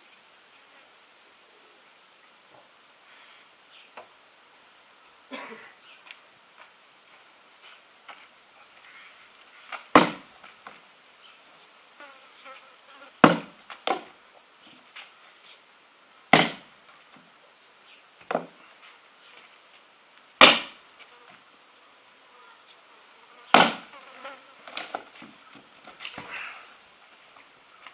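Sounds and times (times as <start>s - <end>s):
axe chopping wood: 9.9s - 10.3s, 13.2s - 14.1s, 16.3s - 16.7s, 20.4s - 20.8s, 23.5s - 23.9s.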